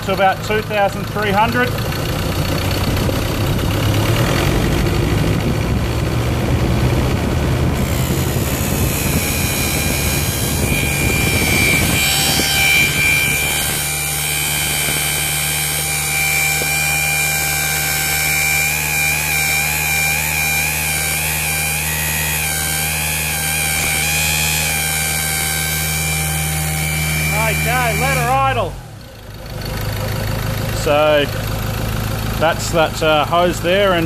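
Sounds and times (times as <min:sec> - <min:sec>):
diesel engine revving: 0:00.0 - 0:34.0
turbo whistle: 0:08.4 - 0:28.7.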